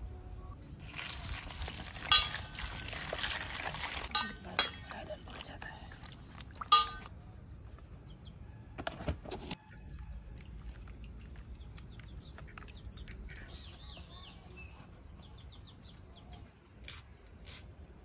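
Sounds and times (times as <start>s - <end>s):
small birds chirping: 4.3s - 8.4s, 9.9s - 16.5s.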